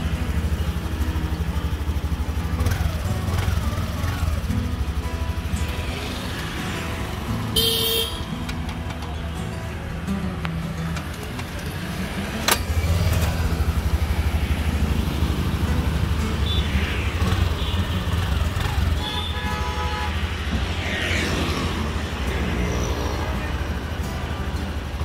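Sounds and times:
background music: 0.0s - 17.7s
scooter engine idling: 0.0s - 25.0s.

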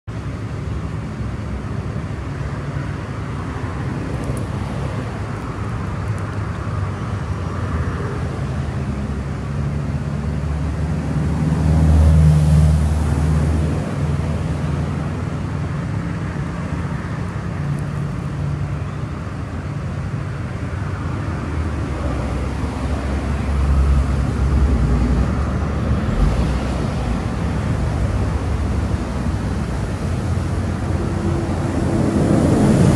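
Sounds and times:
distant road traffic rumble: 0.1s - 32.9s
vehicle passing: 20.9s - 32.9s.

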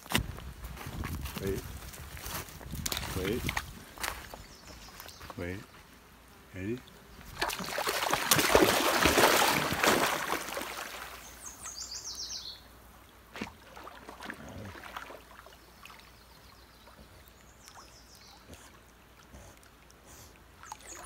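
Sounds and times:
bird calling: 4.2s - 5.8s, 11.1s - 12.7s
dog splashing through water: 7.3s - 11.4s, 13.3s - 16.0s.

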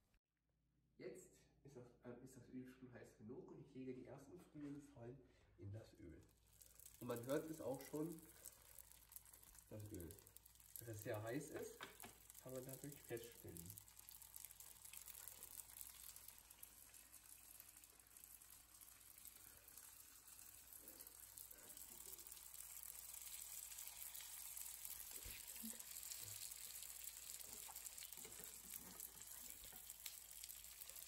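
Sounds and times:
food sizzling in hot oil: 6.4s - 31.0s.

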